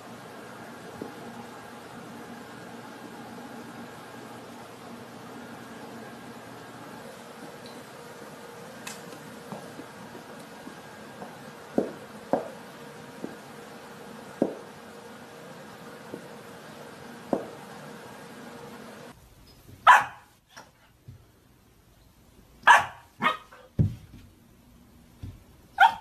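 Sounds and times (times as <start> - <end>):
puppy barking: 19.8 - 20.3, 22.6 - 23.6, 25.8 - 26.0.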